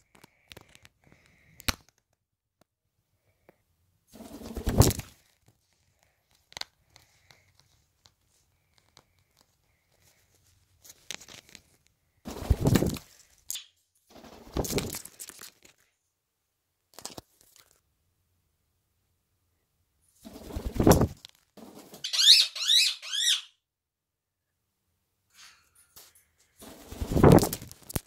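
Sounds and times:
parrot flapping wings: 0:04.2 - 0:05.5, 0:12.3 - 0:15.8, 0:20.2 - 0:22.5, 0:25.9 - 0:28.0.

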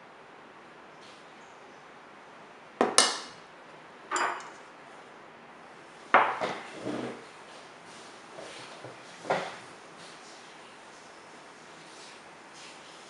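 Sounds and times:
dishes set down on a wooden table: 0:02.8 - 0:03.3, 0:04.1 - 0:04.7, 0:06.2 - 0:06.7.

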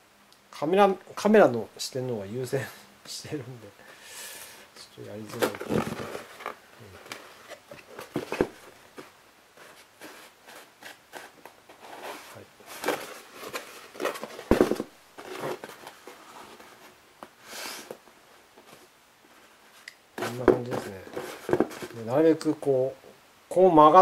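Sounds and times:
hands rustling and scraping foam: 0:05.3 - 0:17.0.

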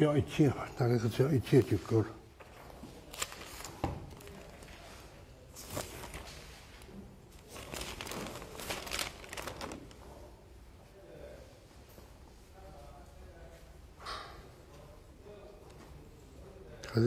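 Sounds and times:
paper rustling: 0:02.4 - 0:10.2.

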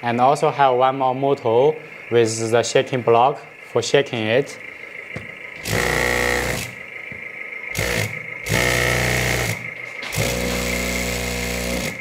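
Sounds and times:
faint high whine: 0:00.0 - 0:12.0
vibration motor buzzing: 0:05.0 - 0:12.0.

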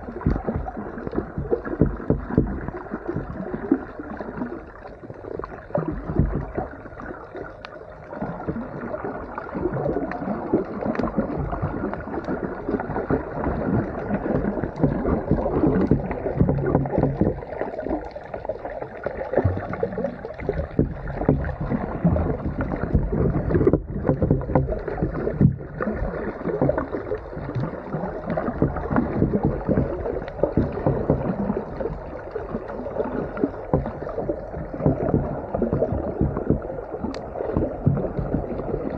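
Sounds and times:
muffled underwater rushing: 0:00.0 - 0:38.9.

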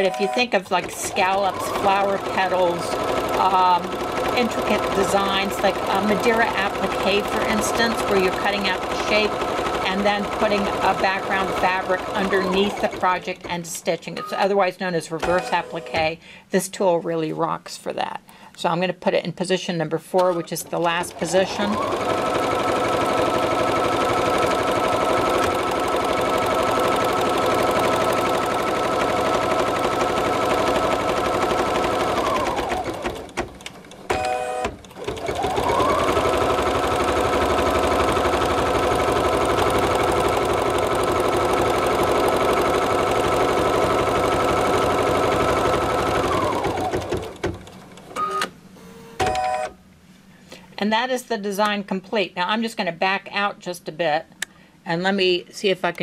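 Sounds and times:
brief machine tone: 0:00.0 - 0:00.6
embroidery machine running: 0:00.2 - 0:13.2, 0:20.8 - 0:47.5.

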